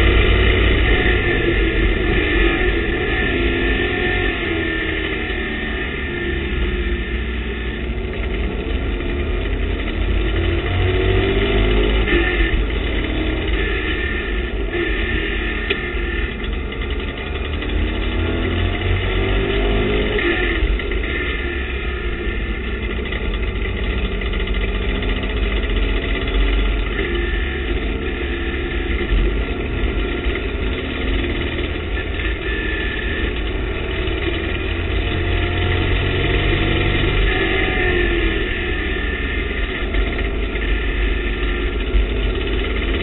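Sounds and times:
race car engine: 0.0 - 43.0
wind and road noise: 0.0 - 43.0.

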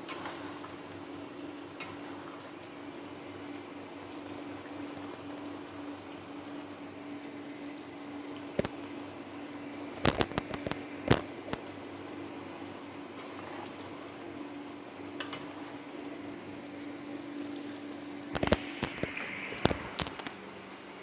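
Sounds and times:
curry bubbling in a pot: 0.0 - 21.0.

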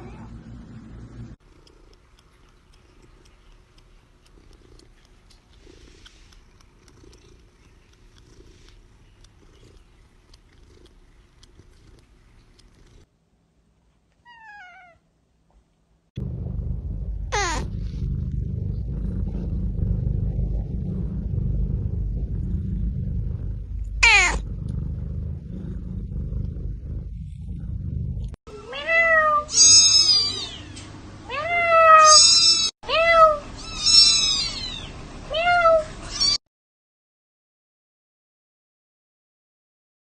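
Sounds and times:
low steady rumble: 0.0 - 13.1, 16.2 - 29.0
cat meow: 14.2 - 15.0, 24.0 - 24.4, 28.7 - 30.7, 31.3 - 36.4
high-pitched kitten mews: 17.3 - 17.6, 24.0 - 24.4.

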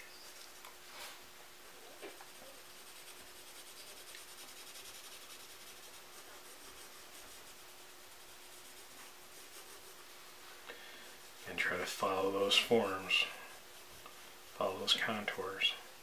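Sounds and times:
pencil rubbing on paper: 2.0 - 10.4, 11.0 - 15.3.

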